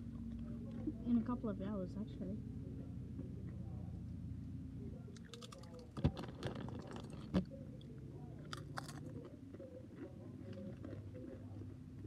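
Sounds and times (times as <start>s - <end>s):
chewing and crunching: 0.0s - 1.0s, 5.0s - 12.0s.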